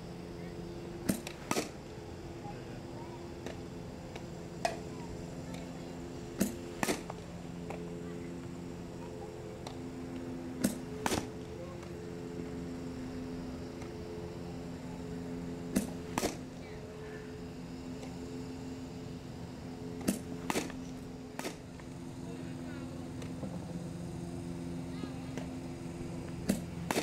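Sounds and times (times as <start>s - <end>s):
steady low hum: 0.0s - 27.0s
bat cracking ball: 1.1s - 1.8s, 6.4s - 7.2s, 10.6s - 11.3s, 15.7s - 16.5s, 20.0s - 21.7s, 26.3s - 27.0s.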